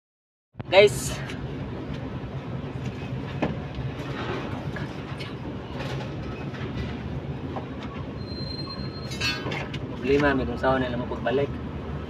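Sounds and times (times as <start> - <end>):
heavy machinery rumble: 1.2 - 10.0.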